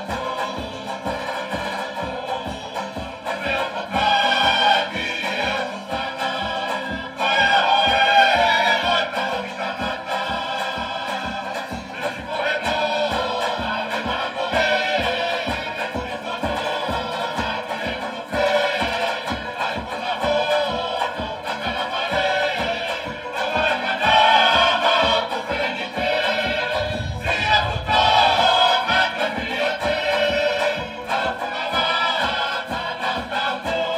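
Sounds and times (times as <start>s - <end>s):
group of voices singing: 0.0s - 33.9s
steady even beat: 26.3s - 30.0s.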